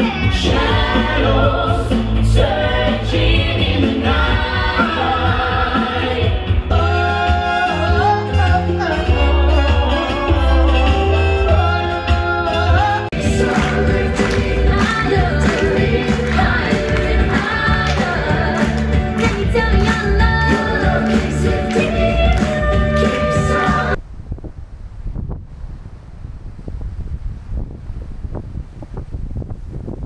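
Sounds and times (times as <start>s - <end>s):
group singing over a beat: 0.0s - 8.8s, 9.7s - 24.0s
stage show music with singers: 0.0s - 24.0s.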